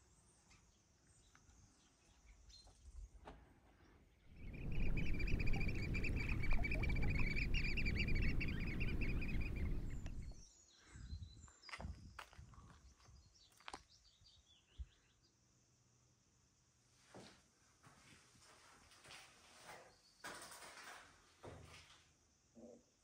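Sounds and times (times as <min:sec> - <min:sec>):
wind rumble on microphone: 0:04.3 - 0:13.2
bird calling high notes: 0:04.4 - 0:10.4.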